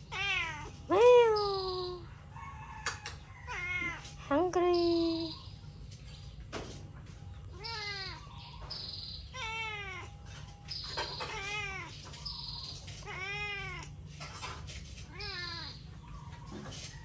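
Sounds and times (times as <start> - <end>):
cat meowing: 0.0 - 0.8, 3.4 - 4.2, 7.5 - 8.4, 9.3 - 10.3, 11.2 - 12.0, 12.9 - 14.0, 15.0 - 15.9.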